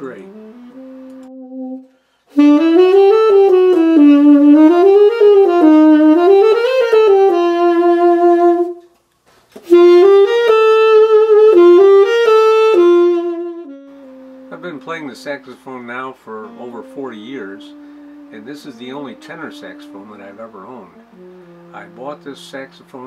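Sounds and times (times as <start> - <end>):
tenor saxophone melody: 0.0 - 9.0, 9.6 - 23.0.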